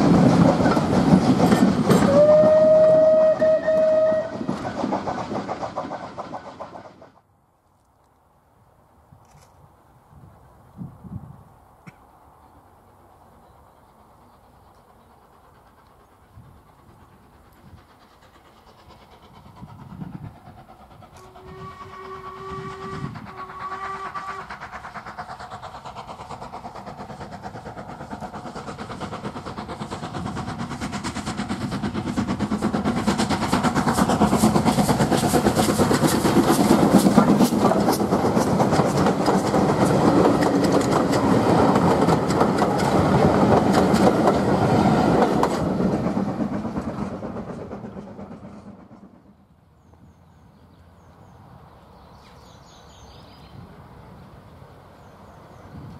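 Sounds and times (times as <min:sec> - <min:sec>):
steam locomotive chuffing: 0:00.0 - 0:07.3, 0:12.6 - 0:51.6
steam whistle: 0:01.9 - 0:04.5, 0:21.2 - 0:24.6.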